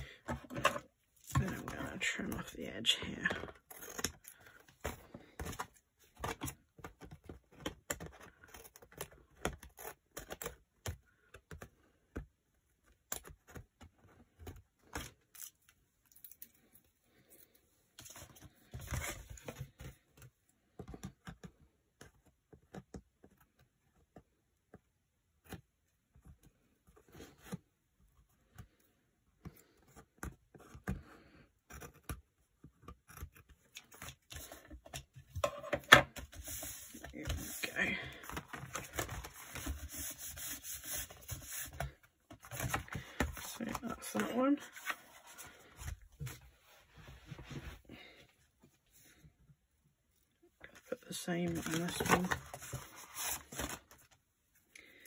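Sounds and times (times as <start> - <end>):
paper rustling and sliding: 36.2 - 47.9, 51.4 - 54.0.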